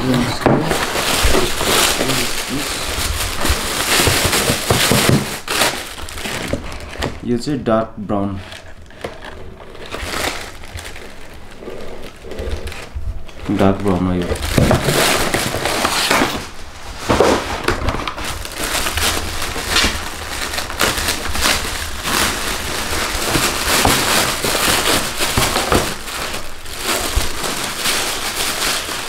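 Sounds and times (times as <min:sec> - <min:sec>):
paper and cardboard crinkling: 0:00.0 - 0:29.0.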